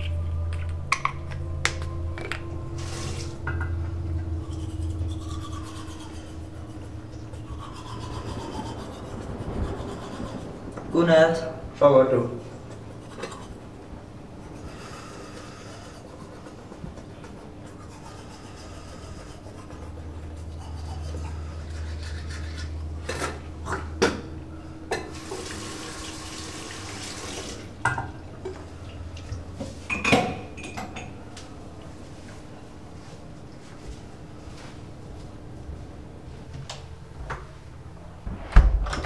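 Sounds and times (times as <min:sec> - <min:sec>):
low rumble: 0:00.0 - 0:14.7, 0:37.6 - 0:39.0
toothbrush scrubbing: 0:04.4 - 0:10.7, 0:13.0 - 0:13.6, 0:14.4 - 0:23.4
tap running water: 0:24.9 - 0:28.1.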